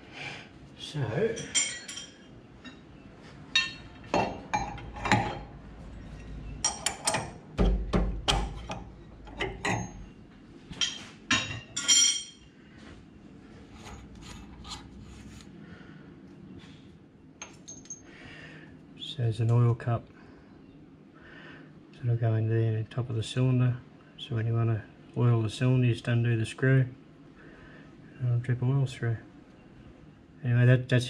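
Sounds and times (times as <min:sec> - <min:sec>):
metal tools clinking and knocking: 0:01.3 - 0:02.9, 0:06.1 - 0:10.0, 0:10.7 - 0:12.5, 0:17.4 - 0:18.1.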